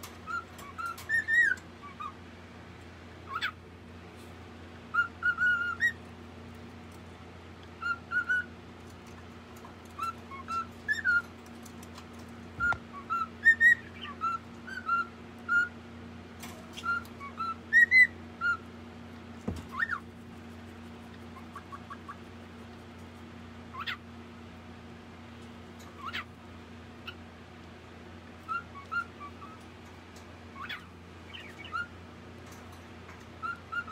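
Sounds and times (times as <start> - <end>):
parrot chirping: 0.2 - 2.2, 3.2 - 3.6, 4.9 - 6.0, 7.7 - 8.6, 10.0 - 11.4, 12.6 - 15.8, 16.7 - 18.7, 19.7 - 20.1, 21.1 - 22.3, 23.7 - 24.1, 25.9 - 26.4, 28.4 - 29.7, 30.5 - 32.0, 33.3 - 33.9
parrot rising calls: 28.4 - 29.6.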